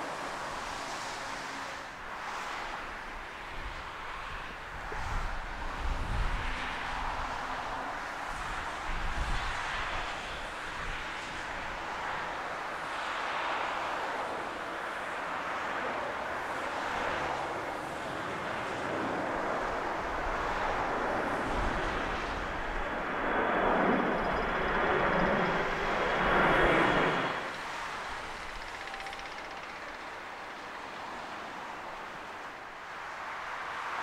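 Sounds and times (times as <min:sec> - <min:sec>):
jet engines climbing: 0:10.0 - 0:32.8.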